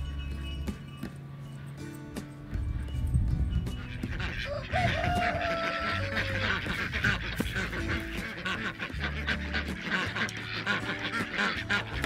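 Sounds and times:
soft background music: 0.0s - 12.0s
ducks quacking: 3.7s - 12.0s.

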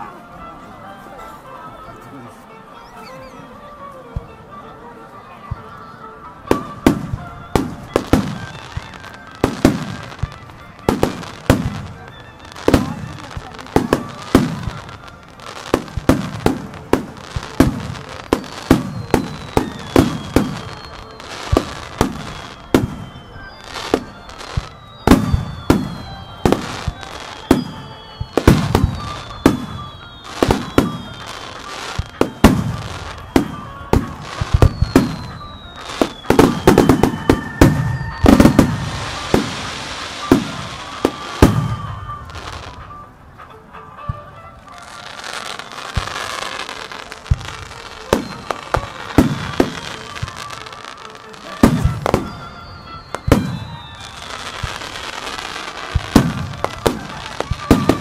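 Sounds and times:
falling whistling tones: 2.6s - 4.4s, 5.8s - 58.0s
firework crackling hiss: 6.5s - 42.9s, 44.9s - 58.0s
firework shells booming: 6.5s - 42.9s, 51.4s - 58.0s.

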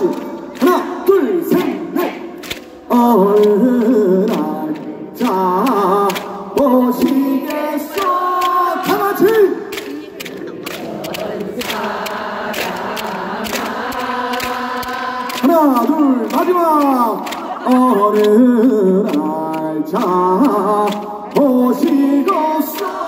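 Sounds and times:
man singing into microphone: 0.0s - 9.8s, 15.2s - 23.0s
audience clapping along: 0.0s - 23.0s
crowd singing: 0.0s - 23.0s.

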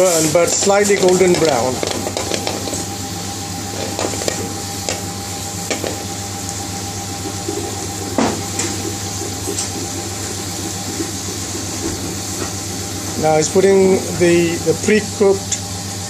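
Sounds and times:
oil popping and crackling: 0.0s - 3.0s, 3.6s - 12.6s
garlic sizzling in hot oil: 0.0s - 7.3s
steady low hum: 0.0s - 16.0s.

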